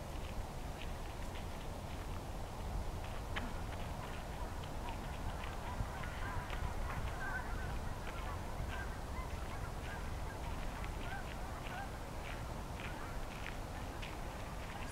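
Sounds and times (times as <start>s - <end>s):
steady low rumble: 0.0s - 14.9s
waterfowl calling: 3.4s - 14.9s.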